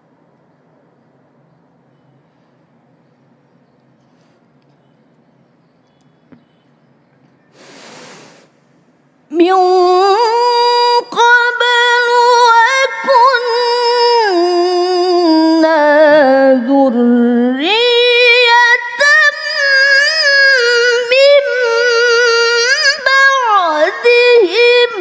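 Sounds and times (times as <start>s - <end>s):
woman reciting melodically: 9.3s - 25.0s.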